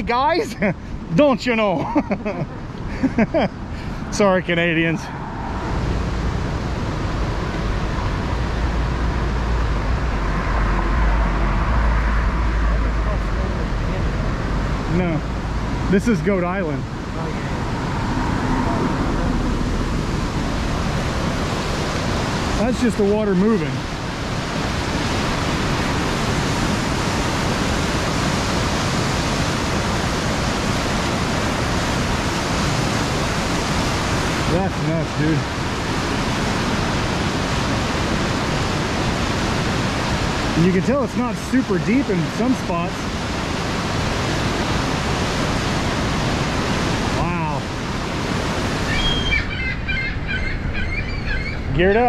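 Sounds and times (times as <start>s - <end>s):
river rapids roaring: 0.0s - 52.0s
deep rumble: 4.9s - 22.5s.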